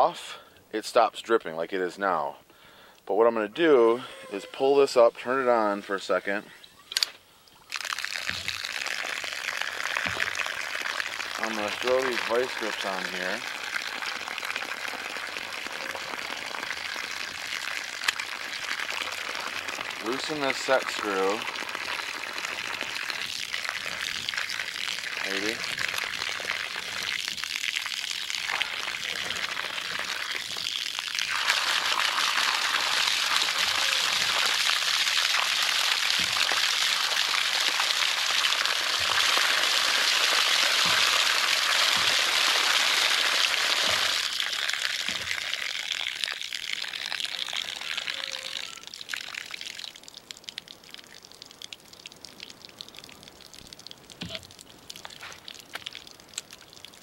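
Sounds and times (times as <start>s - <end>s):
water trickling and dripping: 6.0s - 57.0s
water splattering into snow: 7.7s - 47.3s.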